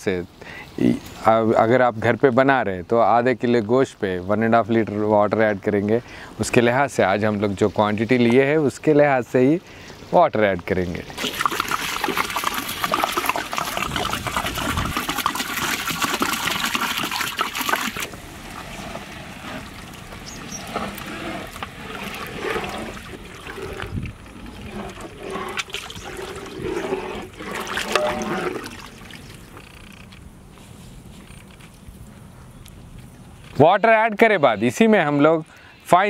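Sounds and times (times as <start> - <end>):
water pouring into pot: 11.2 - 18.1
ladle stirring soup: 19.6 - 29.2.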